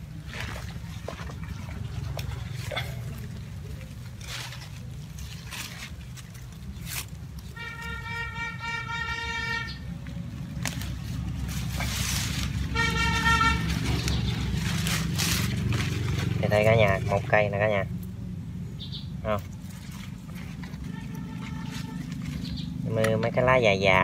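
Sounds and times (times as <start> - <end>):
leaves and soil pulled apart: 0.0 - 8.4, 9.8 - 17.9, 19.4 - 24.0
low engine rumble: 0.0 - 24.0
vehicle horn blasts: 7.5 - 9.9, 12.6 - 14.0, 20.8 - 22.2.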